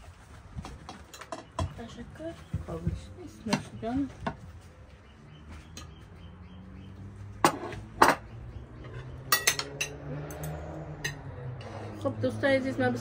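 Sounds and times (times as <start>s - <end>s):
cutlery clinking on plates: 8.9s - 11.2s.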